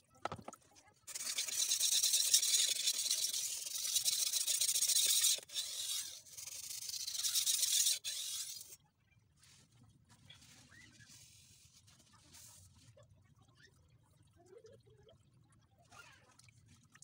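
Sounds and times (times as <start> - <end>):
knife scraping on whetstone: 1.1 - 8.8.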